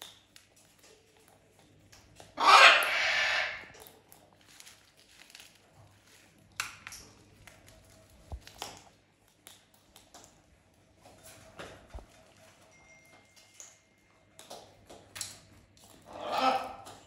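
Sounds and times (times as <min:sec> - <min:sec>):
seeds cracking: 0:03.7 - 0:10.4.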